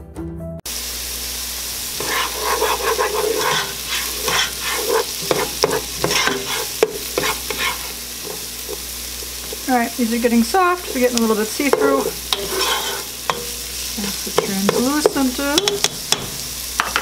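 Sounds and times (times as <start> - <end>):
onions sizzling in oil: 0.7 - 17.0
plastic spoon stirring: 2.0 - 9.7
spoon knocking against pot: 14.4 - 17.0.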